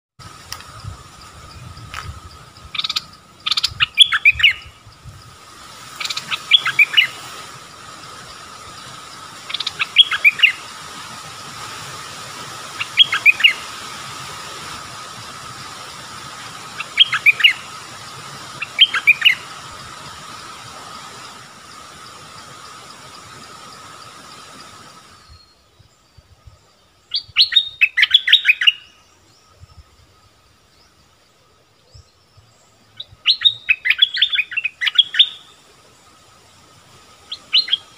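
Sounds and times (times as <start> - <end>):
bird singing: 0.6 - 10.8, 12.8 - 13.7, 16.6 - 19.9, 25.1 - 37.9.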